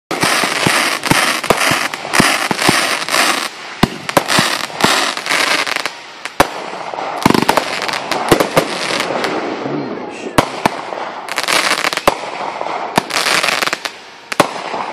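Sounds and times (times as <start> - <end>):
fireworks crackle: 0.1 - 14.9.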